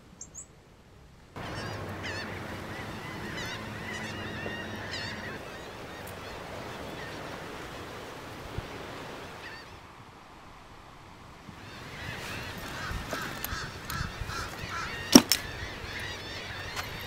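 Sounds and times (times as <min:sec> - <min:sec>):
seabirds calling: 0:00.0 - 0:00.6, 0:01.4 - 0:09.9, 0:11.4 - 0:17.0.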